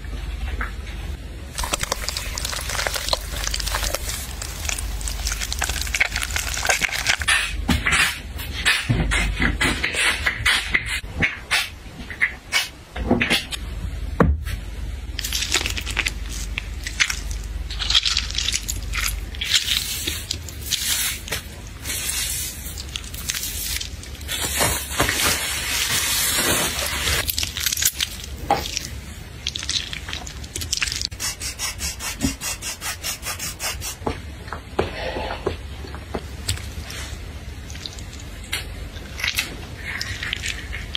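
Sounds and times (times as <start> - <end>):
objects rubbed and scraped: 15.2 - 27.3, 28.6 - 34.1, 34.8 - 35.6.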